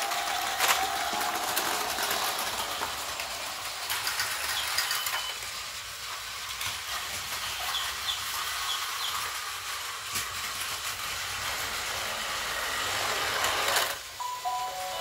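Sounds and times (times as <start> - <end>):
toy train whirring on track: 0.0 - 15.0.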